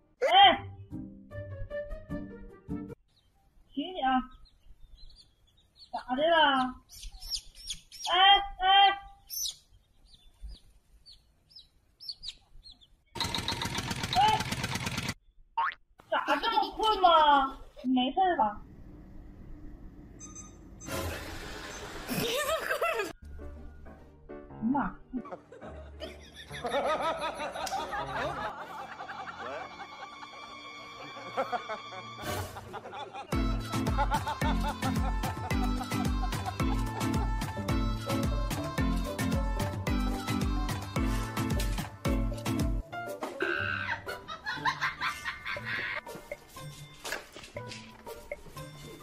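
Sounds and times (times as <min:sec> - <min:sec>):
people laughing: 0:16.2 - 0:17.2, 0:22.1 - 0:23.1, 0:25.1 - 0:37.5, 0:43.6 - 0:46.0.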